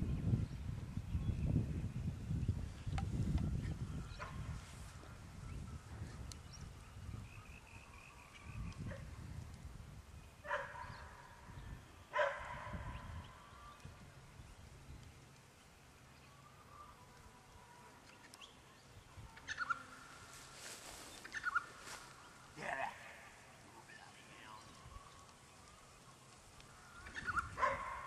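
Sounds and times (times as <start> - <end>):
dog barking: 10.5 - 11.0, 12.1 - 12.8, 27.6 - 28.0.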